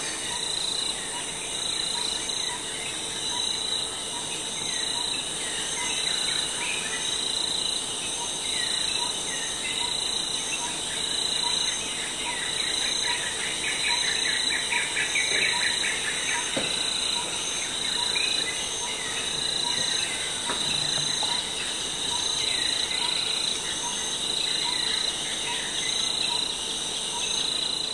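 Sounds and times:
birds chirping and trilling: 7.9 - 27.9.

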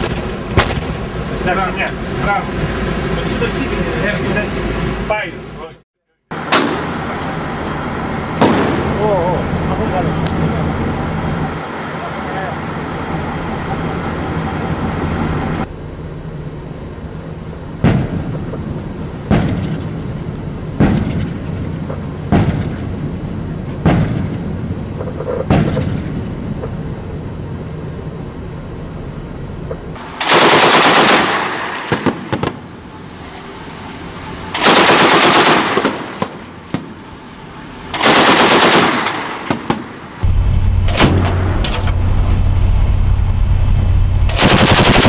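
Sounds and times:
machine-gun bursts: 30.2 - 32.3, 34.6 - 36.3, 38.0 - 39.8, 44.3 - 45.0
gun firing single shots: 30.2 - 32.6.

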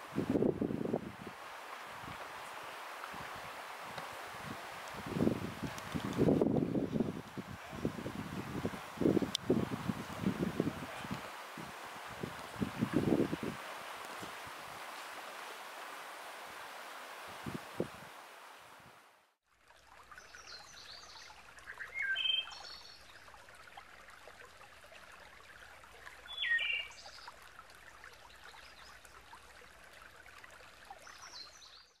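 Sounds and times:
stream trickling: 0.0 - 32.0
bird chirps: 21.7 - 23.0, 26.3 - 27.2.

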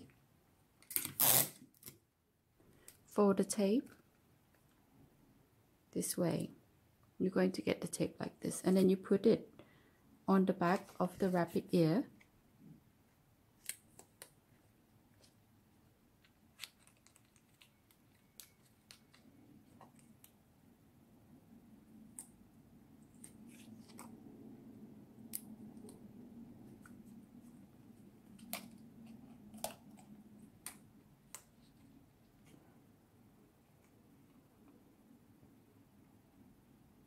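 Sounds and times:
paper and tape crackling: 16.5 - 20.3.

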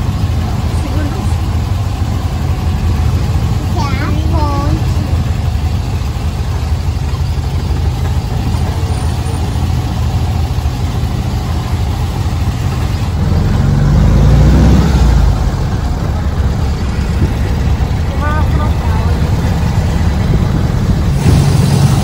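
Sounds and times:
buggy engine rumbling: 0.0 - 22.0
road and wind noise: 0.0 - 22.0.

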